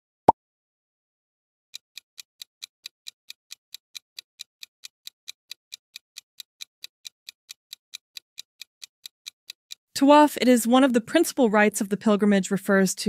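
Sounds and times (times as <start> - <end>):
clock ticking: 1.8 - 12.1.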